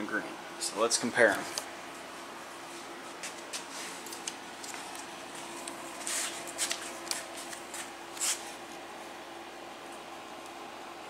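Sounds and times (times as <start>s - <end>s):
faint steady hum: 0.0s - 11.0s
rustling and handling noises: 1.2s - 8.9s.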